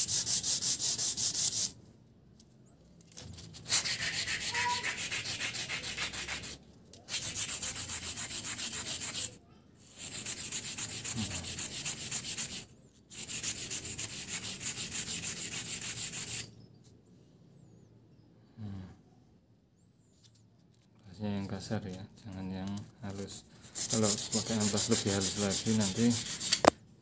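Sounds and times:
sandpaper scrubbing steel rod: 0:00.0 - 0:01.7, 0:03.6 - 0:16.5, 0:23.8 - 0:26.7.

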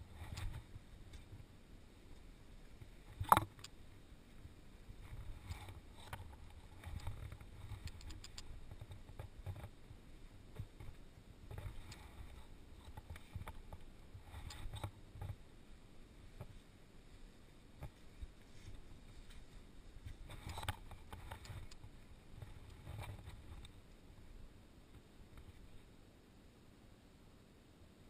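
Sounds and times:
wind rumble on microphone: 0:00.0 - 0:15.5.

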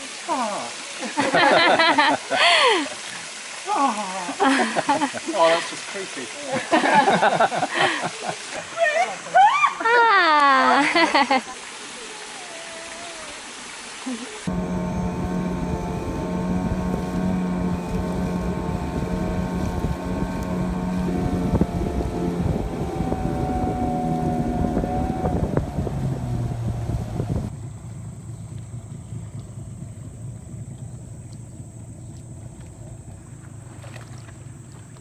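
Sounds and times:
water wash: 0:00.0 - 0:35.0
wind: 0:00.0 - 0:35.0
outboard motor running: 0:14.4 - 0:35.0.

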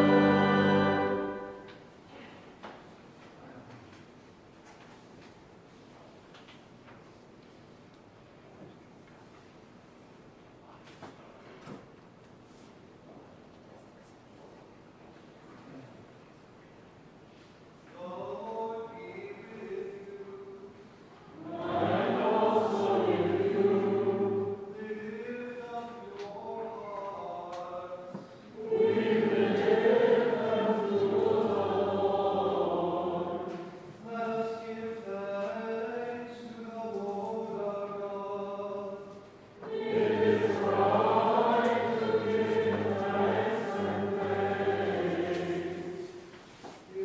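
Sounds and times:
congregation singing a hymn: 0:00.0 - 0:01.9, 0:18.0 - 0:47.0.

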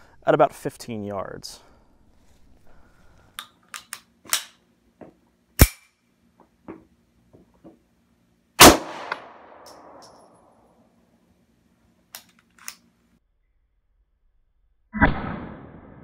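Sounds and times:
pistol handling metallic clicks: 0:03.4 - 0:04.6, 0:05.6 - 0:06.0, 0:09.1 - 0:10.4, 0:12.1 - 0:12.9
gunshot with echoing tail: 0:08.6 - 0:10.0, 0:15.0 - 0:16.0.

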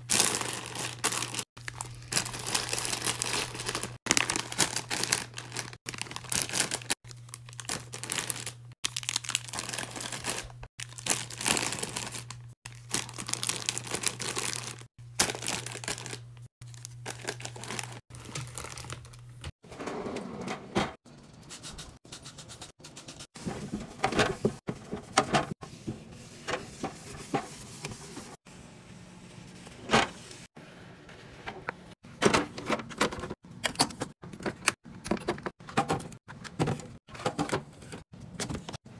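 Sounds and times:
plastic chip bags crinkling: 0:00.0 - 0:19.5.

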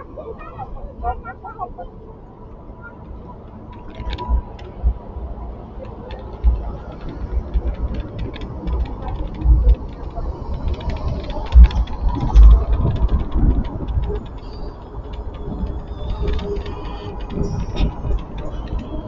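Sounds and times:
road rumble: 0:00.0 - 0:19.0
wind buffeting microphone: 0:00.0 - 0:19.0
small rattling clicks: 0:05.8 - 0:19.0.

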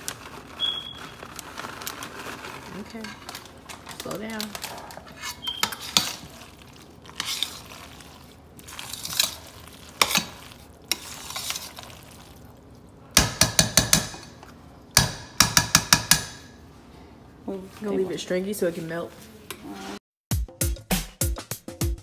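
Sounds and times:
spoon stirring wet macaroni: 0:01.6 - 0:13.0
spoon clanking on metal pot: 0:04.5 - 0:06.3, 0:10.0 - 0:11.7.

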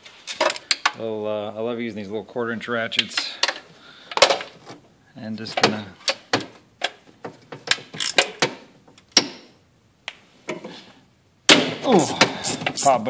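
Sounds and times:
ratchet clicking: 0:08.0 - 0:08.4.

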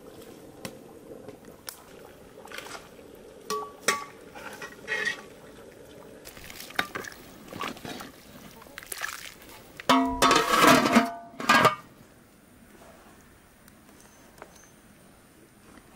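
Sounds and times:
soup sloshing: 0:01.8 - 0:10.9
metal ladle clinking in pot: 0:03.5 - 0:05.2, 0:09.9 - 0:11.8
metal lid clanging: 0:03.5 - 0:05.2, 0:09.9 - 0:11.8.

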